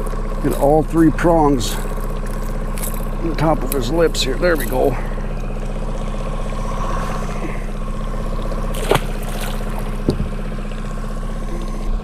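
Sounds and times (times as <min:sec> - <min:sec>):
boat motor running: 0:00.0 - 0:12.0
water around hull: 0:00.0 - 0:12.0
sharp knock or splash: 0:08.7 - 0:09.9.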